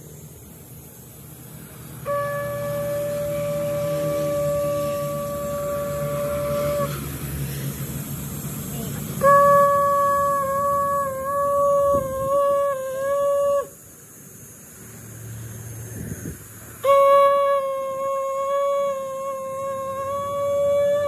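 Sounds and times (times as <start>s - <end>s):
conch shell blasts: 2.0s - 7.3s, 9.2s - 13.6s, 16.8s - 21.0s.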